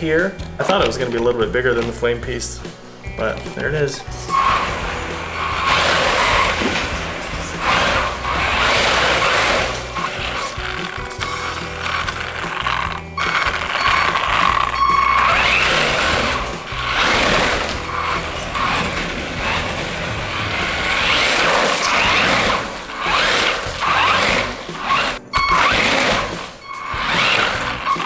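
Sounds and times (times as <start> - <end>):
background music: 0.0 - 28.0
rc truck motors whining: 4.2 - 28.0.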